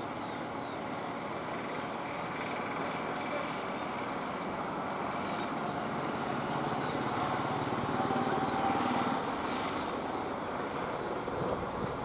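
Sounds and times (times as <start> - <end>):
engine running: 3.7 - 12.0.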